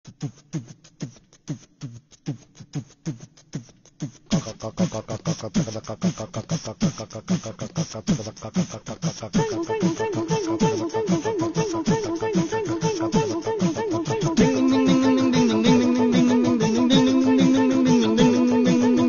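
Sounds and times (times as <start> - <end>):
electronic beat: 14.1 - 19.0.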